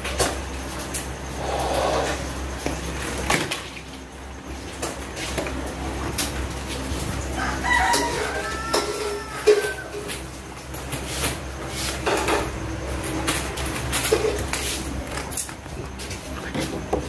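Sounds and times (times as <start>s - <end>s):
rooster crowing: 7.2s - 10.2s.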